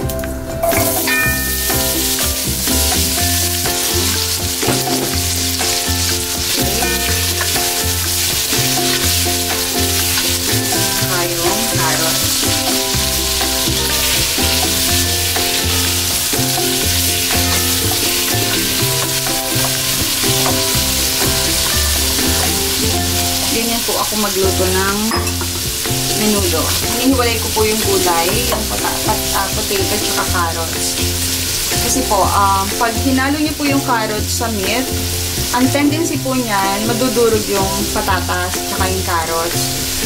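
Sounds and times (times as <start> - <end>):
background music with bass: 0.0 - 40.0
vegetables sizzling in oil: 0.0 - 40.0
spatula stirring pot: 0.7 - 23.6.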